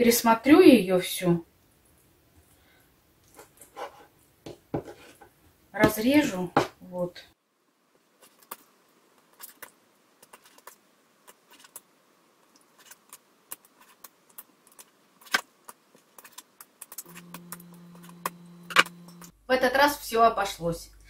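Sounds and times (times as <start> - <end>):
low steady hum: 17.0 - 21.0.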